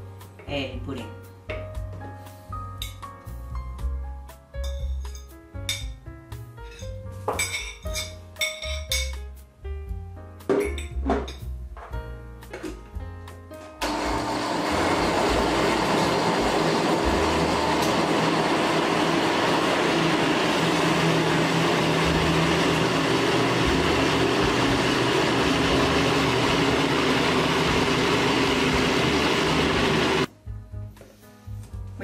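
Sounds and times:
blender running: 13.8s - 30.3s.

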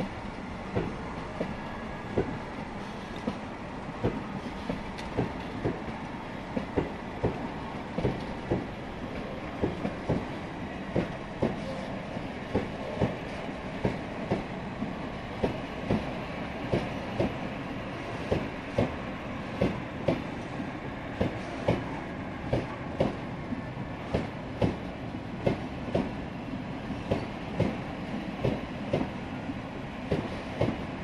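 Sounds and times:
wheels clacking over rail joints: 0.0s - 11.9s
train wheels rumbling on rails: 0.0s - 31.0s.

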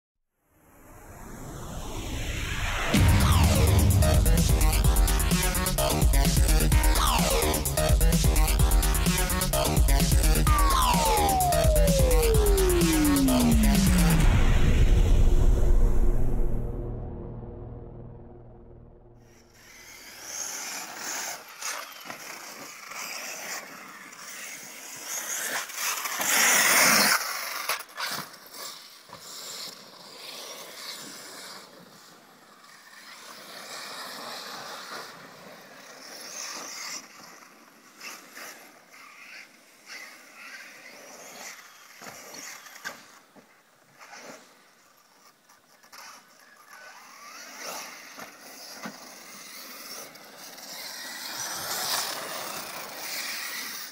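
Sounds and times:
radio-controlled cars on dirt: 19.3s - 53.9s.

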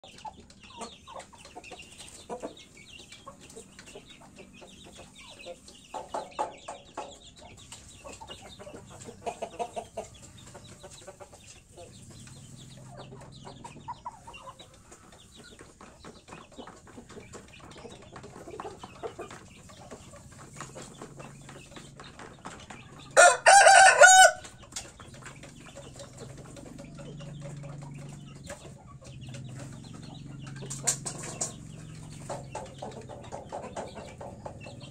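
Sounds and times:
chickens clucking softly: 0.0s - 34.9s
loud chicken call: 23.2s - 24.4s.

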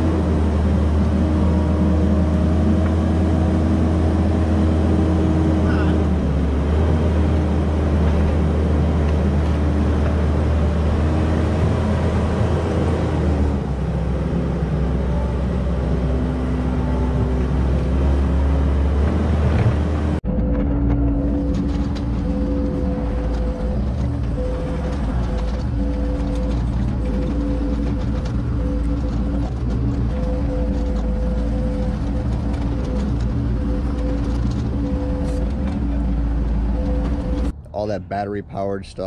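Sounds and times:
loader engine drone: 0.0s - 39.0s.

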